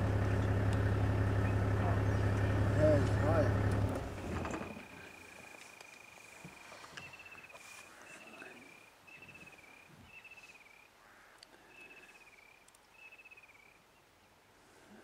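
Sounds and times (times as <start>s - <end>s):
faint high trilling call: 4.6s - 10.9s.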